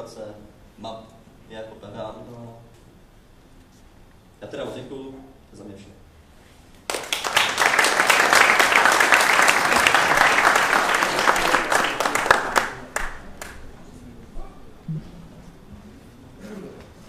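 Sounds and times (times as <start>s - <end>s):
audience applauding: 6.9s - 13.6s.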